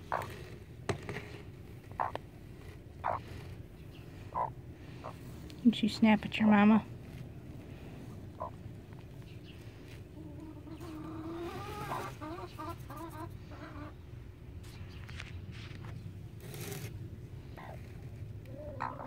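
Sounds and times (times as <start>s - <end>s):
hen clucking: 0.0s - 0.6s, 1.8s - 5.2s, 8.2s - 8.6s, 9.5s - 14.1s, 17.6s - 19.0s.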